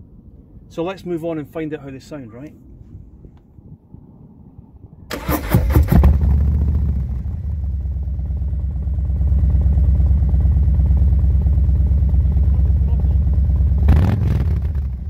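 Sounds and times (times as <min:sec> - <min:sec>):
motorcycle starter cranking: 0:05.1 - 0:06.3
motorcycle engine idling: 0:06.0 - 0:15.0.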